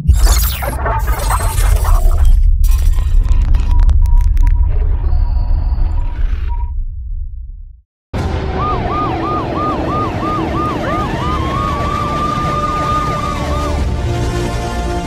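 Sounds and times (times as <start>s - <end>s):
deep rumble: 0.0s - 14.5s
siren sweeping up: 8.2s - 13.9s
siren wailing up and down quickly: 8.4s - 13.9s.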